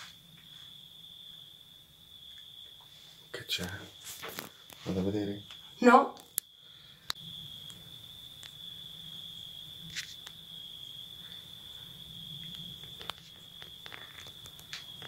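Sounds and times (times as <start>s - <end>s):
faint clicks: 6.2s - 7.8s.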